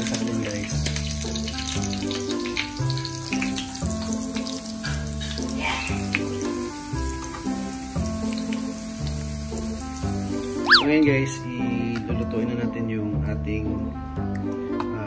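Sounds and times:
oil sizzling in a pan: 0.0s - 11.4s
background music: 0.0s - 15.0s.

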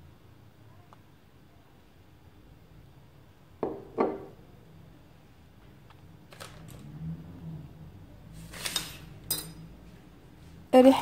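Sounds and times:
glass jar clunking on stone counter: 3.6s - 4.4s.

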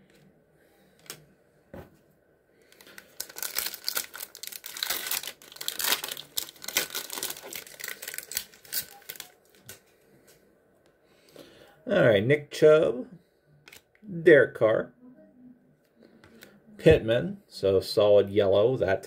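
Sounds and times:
plastic wrapper crinkling and tearing: 2.7s - 9.9s.

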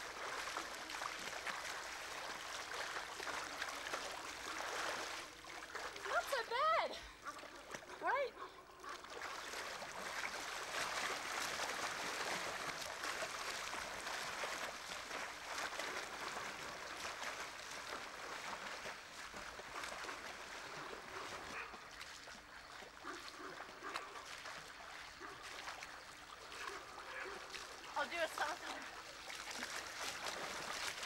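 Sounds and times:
swimmer splashing in pool: 0.0s - 8.3s, 8.9s - 31.0s.

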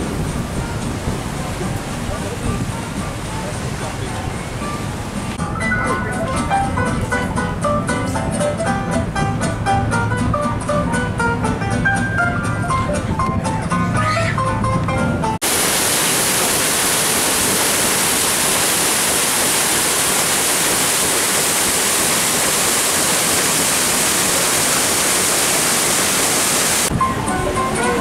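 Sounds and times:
paddlewheel splashing water: 0.0s - 6.6s, 15.4s - 28.0s.

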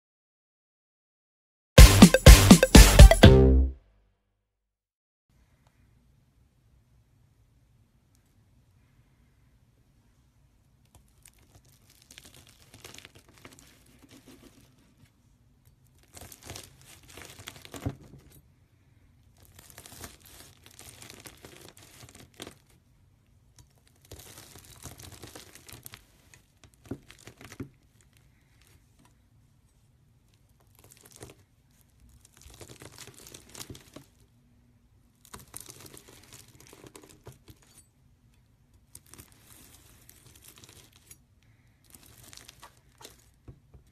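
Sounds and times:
crunchy slime crackling under knife: 10.9s - 15.0s, 15.7s - 18.1s, 19.4s - 22.9s, 23.6s - 28.8s, 30.6s - 34.3s, 35.2s - 37.5s, 38.8s - 43.4s.

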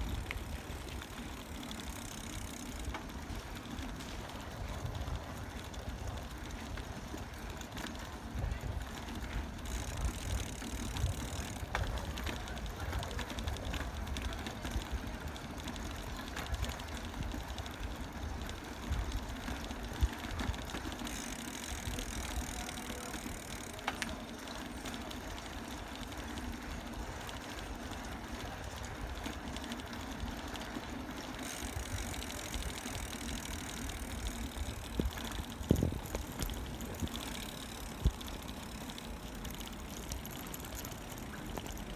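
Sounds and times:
bicycle knocks and rattles: 0.0s - 41.9s
tyres rolling on pavement: 0.0s - 41.9s
wind buffeting microphone: 34.6s - 38.5s.

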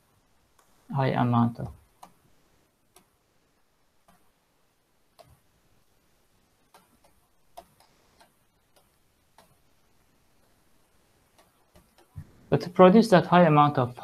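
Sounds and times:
stylus tapping on pen tablet: 1.9s - 2.2s, 2.9s - 3.2s, 4.0s - 4.4s, 5.1s - 5.5s, 6.6s - 9.7s, 11.2s - 12.3s.

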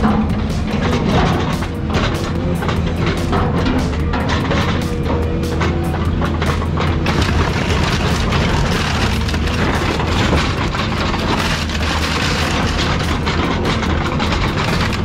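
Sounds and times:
excavator diesel engine: 0.0s - 15.0s
metal and glass crunching: 7.0s - 15.0s.

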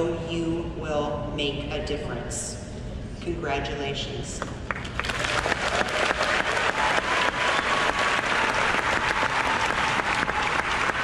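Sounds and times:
large audience applauding: 4.7s - 11.0s.

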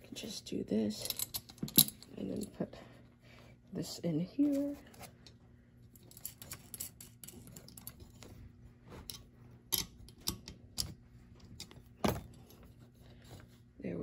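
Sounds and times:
metal pieces clicking and knocking: 1.0s - 2.5s.

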